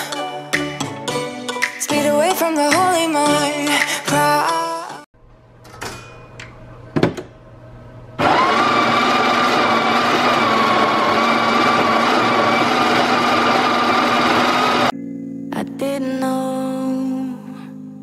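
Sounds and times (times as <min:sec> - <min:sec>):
coffee grinder running: 0:08.2 - 0:14.9.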